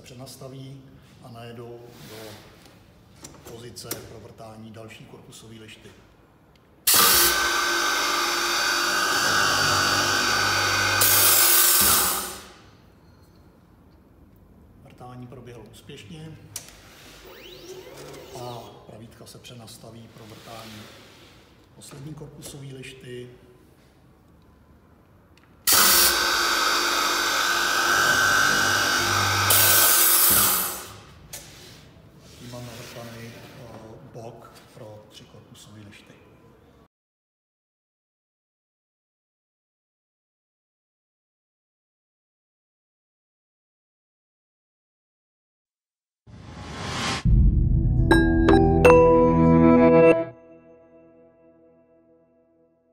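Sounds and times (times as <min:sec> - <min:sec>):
drill bits boring into wood: 0:06.9 - 0:12.5, 0:25.7 - 0:30.9
drill motor whining: 0:06.9 - 0:12.5, 0:25.7 - 0:30.9.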